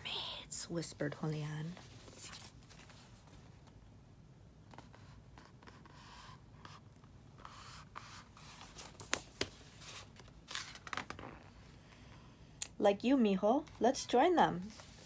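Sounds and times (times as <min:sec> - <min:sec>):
book page turning: 0:01.8 - 0:03.7, 0:08.4 - 0:11.6.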